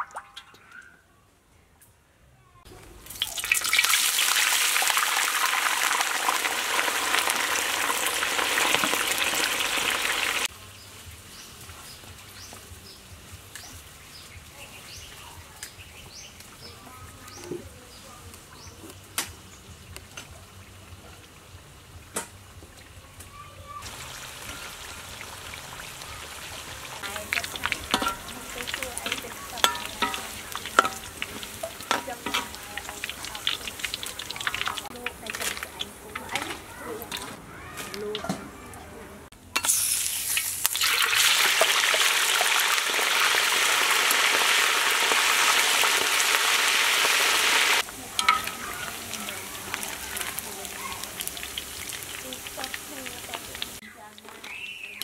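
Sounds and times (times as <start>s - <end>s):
food deep-frying in oil: 2.7s - 38.4s, 39.5s - 55.0s
wire skimmer clinking and scraping: 27.0s - 38.3s, 48.1s - 49.0s.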